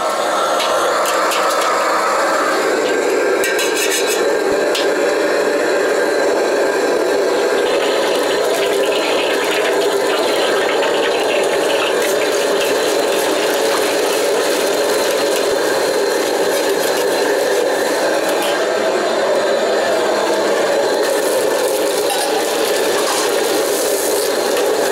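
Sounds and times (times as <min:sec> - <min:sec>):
gas burner and extractor roar: 0:00.0 - 0:24.9
meat sizzling in hot oil: 0:02.0 - 0:18.5, 0:20.4 - 0:24.9
metal ladle scraping a wok: 0:03.4 - 0:04.3.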